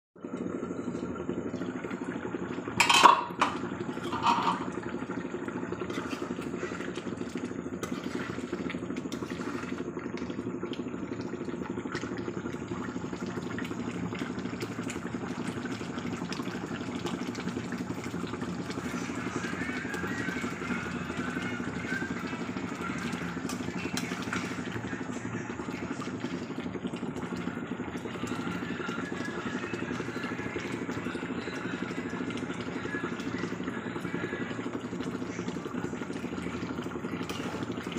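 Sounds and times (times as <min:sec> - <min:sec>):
steady low hum: 0:00.2 - 0:37.9
metal pot lid clanking: 0:02.8 - 0:04.7.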